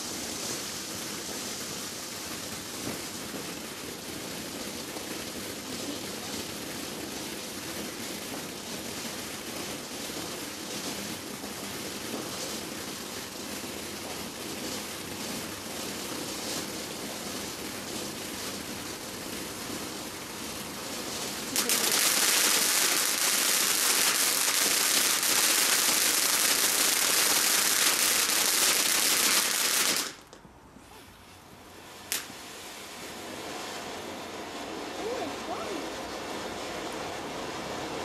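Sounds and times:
dense firework crackling: 0.0 - 30.4, 31.4 - 38.0
firework fountain hissing: 0.0 - 38.0
sharp crack: 21.5 - 30.5, 32.1 - 32.4.

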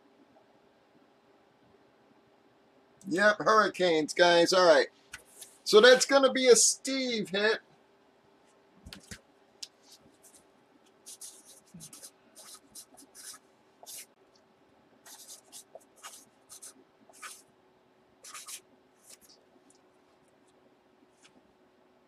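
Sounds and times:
marker pen scratching on paper: 9.8 - 14.2, 15.0 - 17.5, 18.2 - 19.7.

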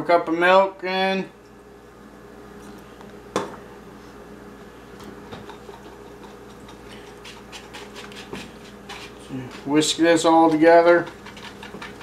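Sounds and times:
whisk scraping a mixing bowl: 5.5 - 12.0.

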